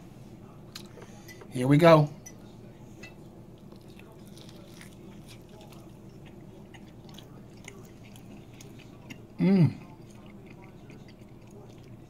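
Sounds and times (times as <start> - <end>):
low steady hum: 0.0 - 12.0
chewing: 3.5 - 12.0.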